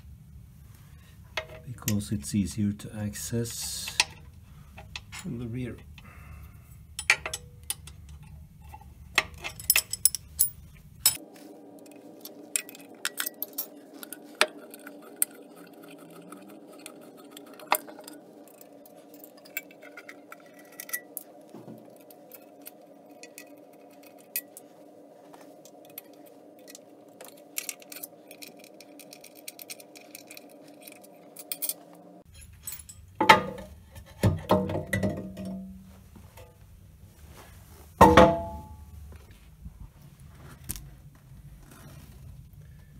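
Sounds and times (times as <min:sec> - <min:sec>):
faint steady hum: 0:00.0 - 0:42.9
hand tools clicking on metal: 0:06.9 - 0:11.2, 0:11.8 - 0:24.7, 0:25.6 - 0:33.1.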